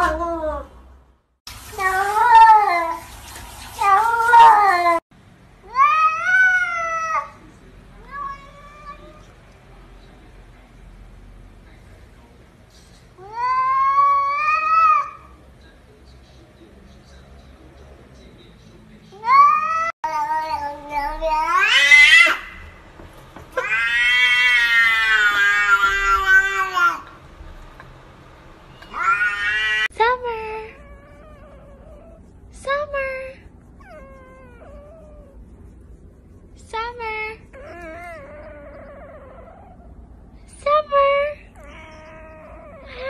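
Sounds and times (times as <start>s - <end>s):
cats meowing: 1.8s - 3.0s, 3.8s - 5.0s, 5.7s - 7.4s, 8.0s - 9.4s, 13.2s - 15.4s, 19.2s - 22.8s, 23.5s - 27.2s, 28.8s - 29.9s, 41.5s - 43.0s.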